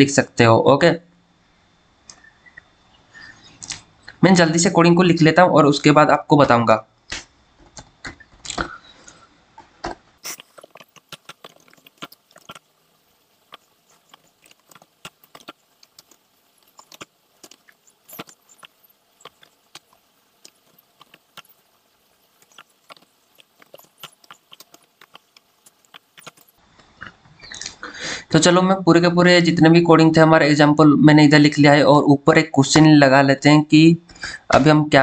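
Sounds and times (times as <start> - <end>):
laptop keyboard typing: 10.2 - 26.6.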